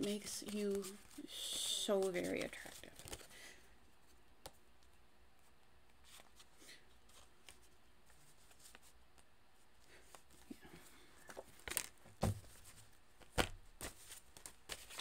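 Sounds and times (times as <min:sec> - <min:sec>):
playing cards shuffling: 0:00.0 - 0:03.3, 0:05.9 - 0:09.3, 0:09.9 - 0:15.0
low room hum: 0:00.0 - 0:15.0.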